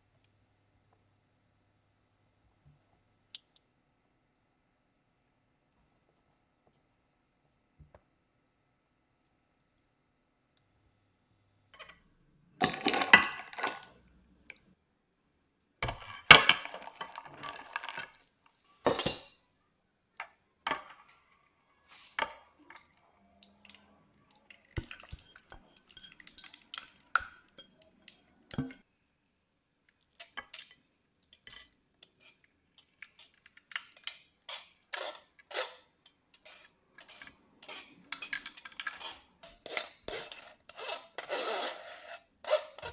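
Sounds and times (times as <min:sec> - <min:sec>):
pans and utensils clattering: 0:12.6 - 0:14.0, 0:15.8 - 0:18.2
spoon scraping a metal sieve: 0:30.2 - 0:42.9.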